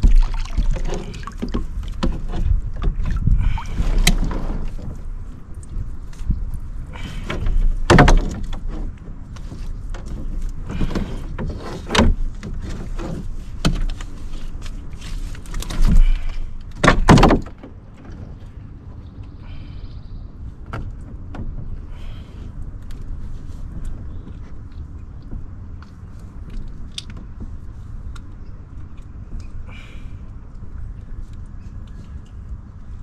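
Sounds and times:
knocks against a canoe hull: 7.1s - 14.0s, 15.7s - 18.4s.

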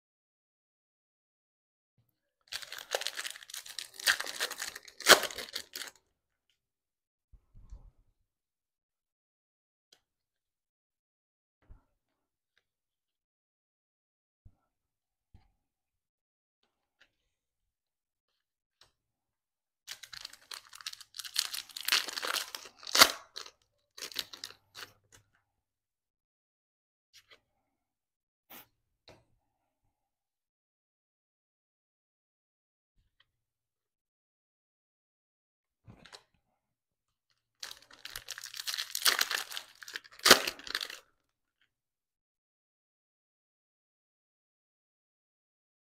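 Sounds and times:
foil wrapper tearing and crinkling: 2.5s - 5.9s, 19.9s - 24.9s, 37.6s - 41.0s.

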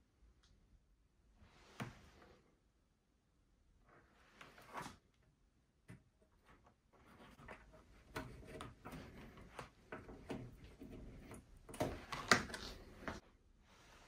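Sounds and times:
cable rubbing: 7.0s - 13.2s.

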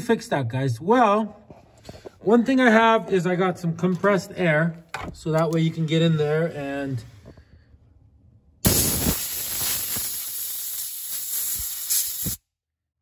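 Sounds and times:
compressed air spray hiss: 8.6s - 12.4s.

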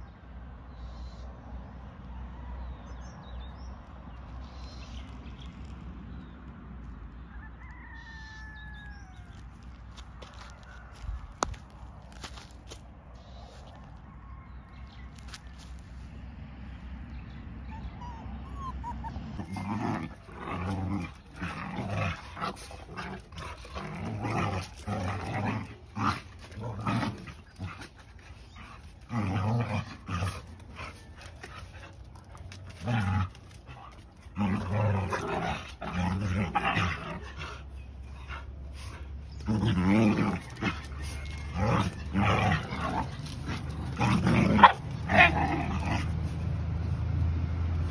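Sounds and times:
dogs growling and snarling: 17.7s - 46.9s.

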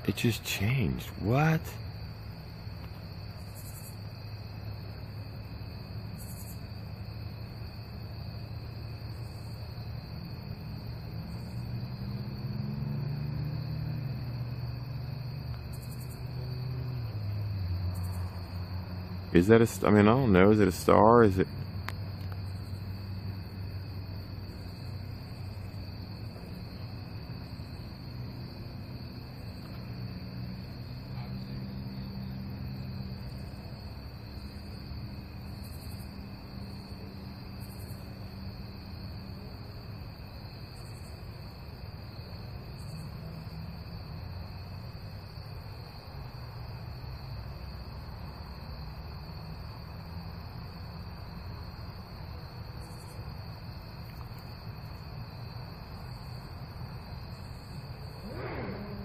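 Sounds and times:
insect chorus trilling: 0.0s - 59.0s
low wavering hum: 57.5s - 59.0s.

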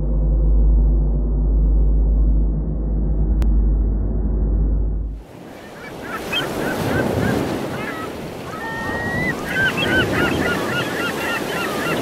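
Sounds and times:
surf washing in: 5.2s - 12.0s
birds calling: 5.3s - 12.0s.

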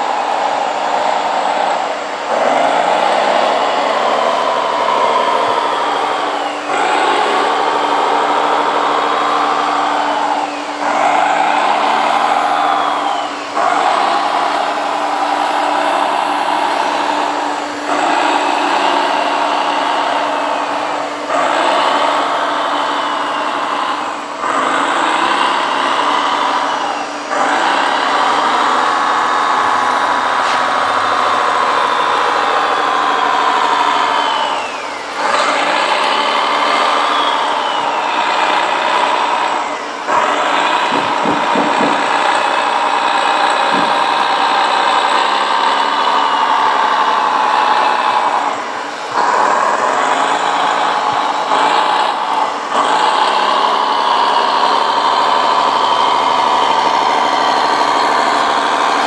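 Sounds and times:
toy truck motor running: 0.0s - 59.0s.

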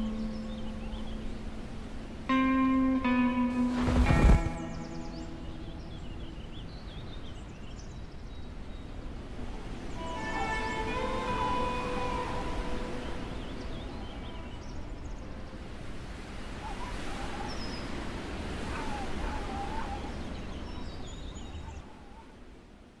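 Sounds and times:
held notes of music: 0.0s - 6.6s, 9.9s - 15.8s
steady rushing noise: 0.0s - 7.5s
bird calls: 0.0s - 22.5s.

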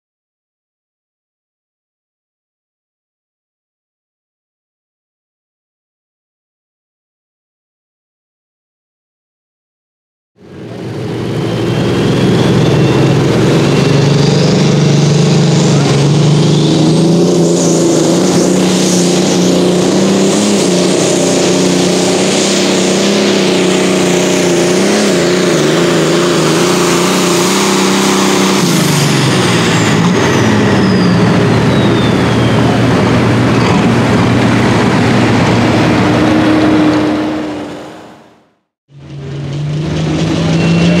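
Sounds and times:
tractor engine at full power: 10.4s - 41.0s
high whistle: 11.5s - 15.8s, 29.7s - 33.9s, 40.4s - 41.0s.

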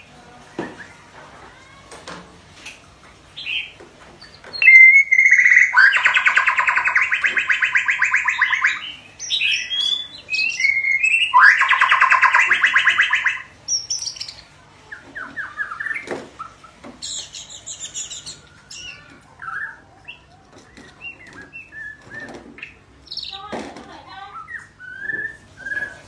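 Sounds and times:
bird whistles and chirps: 3.4s - 14.4s, 15.2s - 23.4s, 24.3s - 26.0s
bird trilling: 3.4s - 23.5s.

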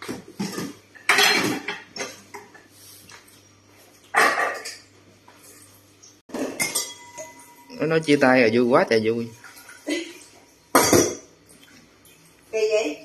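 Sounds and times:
pots and dishes clattering in sink: 0.0s - 2.7s, 4.0s - 7.9s, 9.3s - 11.4s.

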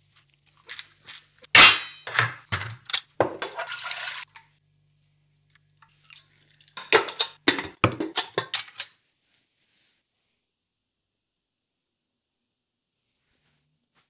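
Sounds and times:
metal basket scraping pot: 1.9s - 4.3s.

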